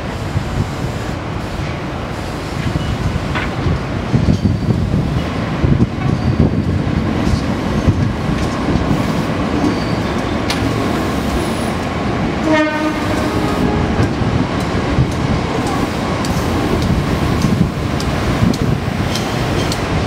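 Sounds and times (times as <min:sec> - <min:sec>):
train wheels rumbling over rails: 0:00.0 - 0:20.0
clicks at rail joints: 0:07.2 - 0:08.9
train horn blast: 0:12.4 - 0:14.0.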